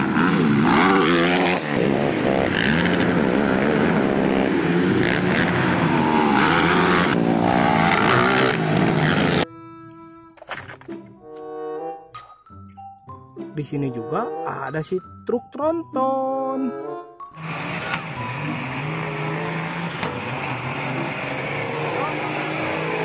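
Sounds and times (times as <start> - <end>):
quad bike engines revving: 0.0 - 9.5, 17.4 - 23.0
background music: 6.4 - 23.0.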